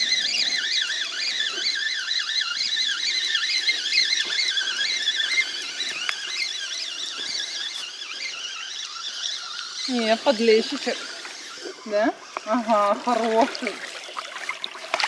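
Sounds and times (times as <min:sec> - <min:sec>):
birds singing in chorus: 0:00.0 - 0:15.0.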